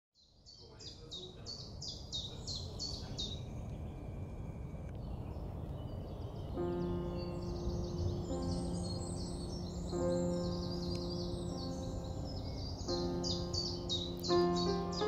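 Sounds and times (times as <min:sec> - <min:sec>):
songbird singing: 0:00.2 - 0:15.0
low outdoor rumble: 0:02.3 - 0:15.0.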